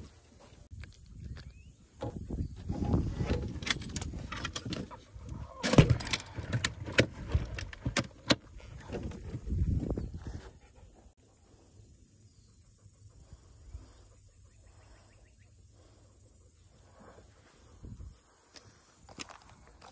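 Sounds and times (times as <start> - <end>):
low rumbling handling noise: 0.9 - 11.0.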